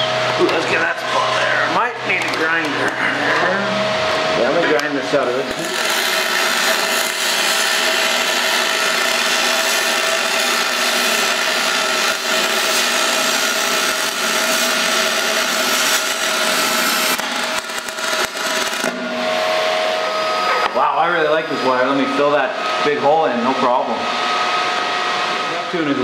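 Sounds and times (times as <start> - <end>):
welding arc hissing and crackling: 0.0 - 2.9, 4.6 - 20.2.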